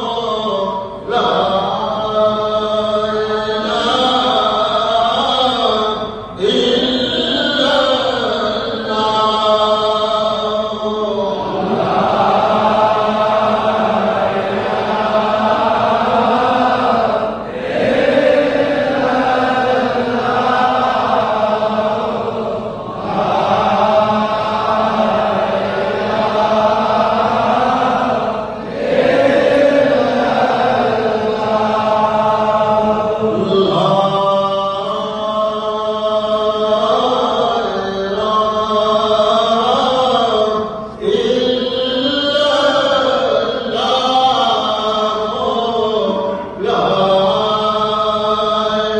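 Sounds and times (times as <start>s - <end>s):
man chanting: 0.0s - 48.9s.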